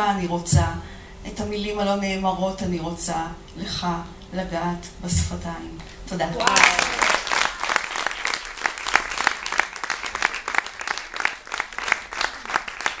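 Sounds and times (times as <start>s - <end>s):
audience applauding: 6.4s - 13.0s
loud close claps: 6.5s - 13.0s.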